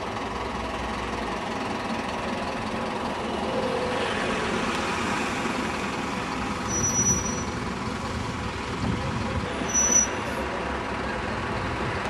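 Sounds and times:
bus engine running: 0:00.0 - 0:12.0
traffic noise: 0:00.0 - 0:12.0
high squeal: 0:06.6 - 0:07.6, 0:09.6 - 0:10.4.

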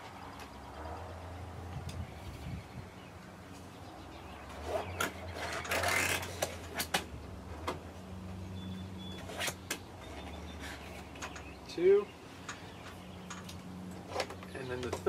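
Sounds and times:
zip tie ratcheting rasp: 0:04.6 - 0:06.9.

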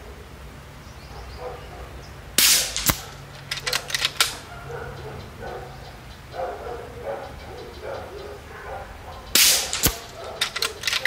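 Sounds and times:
air rifle shot: 0:02.4 - 0:04.4, 0:09.4 - 0:11.0
sharp crack: 0:02.4 - 0:04.5, 0:09.3 - 0:11.0
rifle cocking handle clicks: 0:02.6 - 0:04.4, 0:09.4 - 0:11.0.

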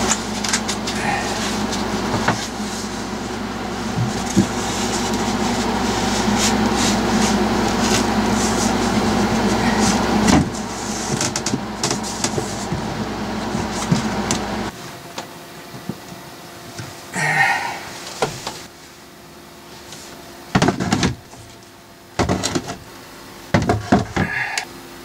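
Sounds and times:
machine humming: 0:00.0 - 0:25.0.

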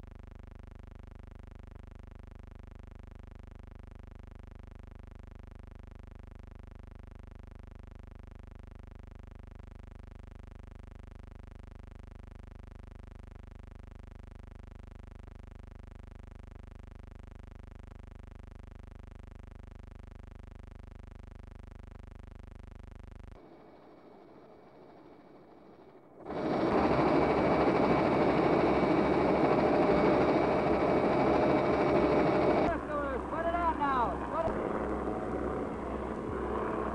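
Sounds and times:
steady electrical hum: 0:23.4 - 0:36.9.

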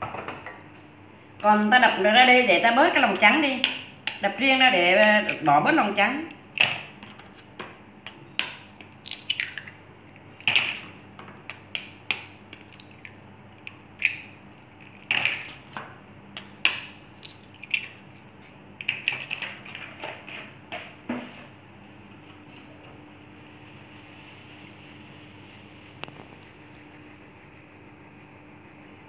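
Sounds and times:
eggs cracking against glass bowl: 0:08.0 - 0:09.8, 0:11.4 - 0:15.7.

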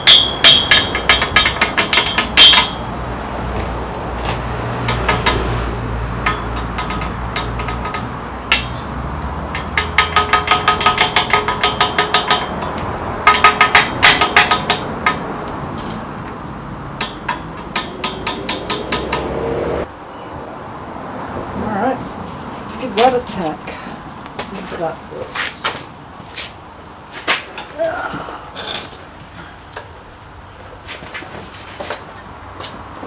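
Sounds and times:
hammer tapping on steel: 0:00.0 - 0:02.8, 0:06.2 - 0:08.8, 0:09.5 - 0:15.2, 0:17.0 - 0:19.4.

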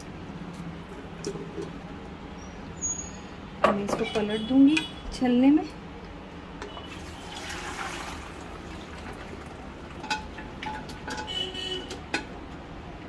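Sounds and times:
broth pouring through a strainer: 0:06.9 - 0:09.6.

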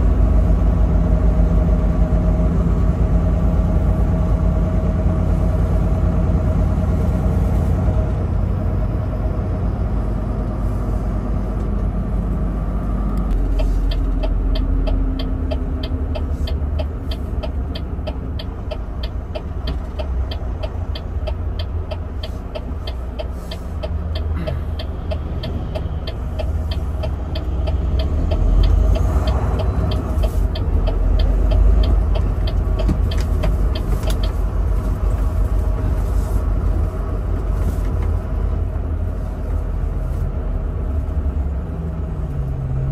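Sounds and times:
truck engine and road rumble: 0:00.0 - 0:42.9
even ticking: 0:13.5 - 0:34.6.

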